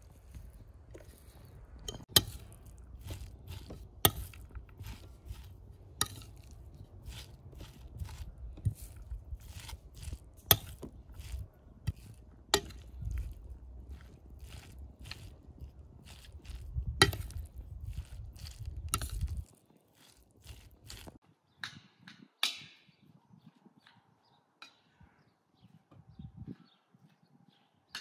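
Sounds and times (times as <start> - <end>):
spoon mixing wet minced meat: 0.3 - 21.2.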